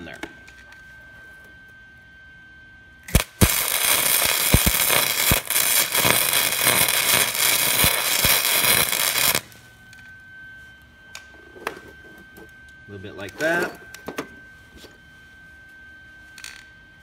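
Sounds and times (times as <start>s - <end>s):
welder arc crackling: 3.1s - 9.6s.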